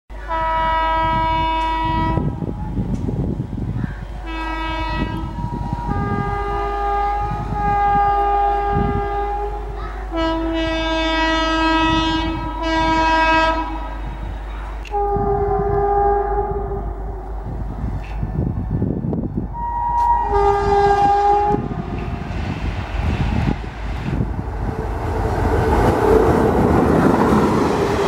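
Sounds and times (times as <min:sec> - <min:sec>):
locomotive air horn blasts: 0:00.2 - 0:02.4, 0:04.2 - 0:17.2, 0:19.5 - 0:22.4.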